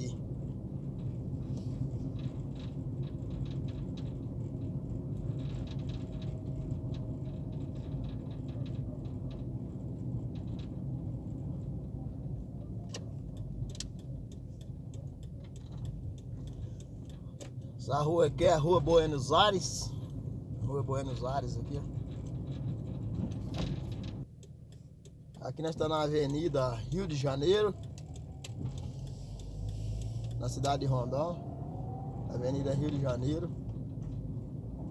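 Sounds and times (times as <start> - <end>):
car engine and road noise: 0.0 - 34.9
sharp clicks: 22.2 - 32.2.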